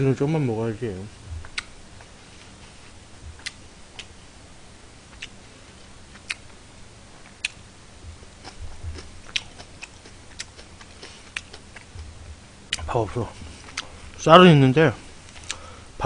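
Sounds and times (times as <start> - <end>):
mouth clicks and smacks: 1.3 - 2.2, 3.3 - 4.2, 5.1 - 5.4, 6.1 - 6.6, 7.2 - 14.0, 15.3 - 15.6
person chewing: 1.3 - 4.2, 5.1 - 5.4, 6.1 - 6.5, 7.2 - 14.2, 15.3 - 15.8.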